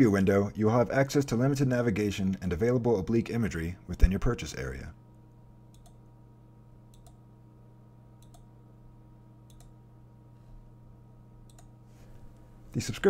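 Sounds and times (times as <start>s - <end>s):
faint electrical hum: 0.0s - 13.0s
computer mouse button clicking: 5.7s - 6.0s, 8.2s - 8.4s, 9.5s - 9.7s.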